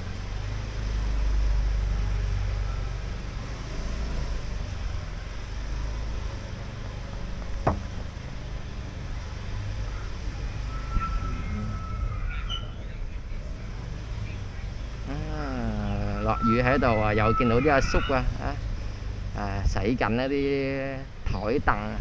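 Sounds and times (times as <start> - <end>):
low street rumble: 0.0 - 22.0
sharp knock: 7.6 - 7.9.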